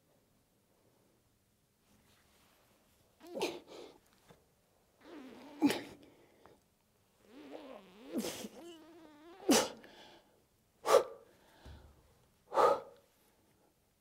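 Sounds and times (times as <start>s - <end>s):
sneeze-like bursts: 3.2s - 3.7s, 5.0s - 6.0s, 7.5s - 8.7s, 9.3s - 9.8s, 10.8s - 11.2s.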